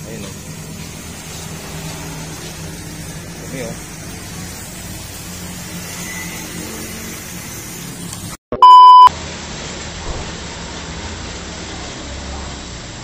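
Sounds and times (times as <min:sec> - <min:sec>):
electronic beep tone: 0:08.5 - 0:09.1.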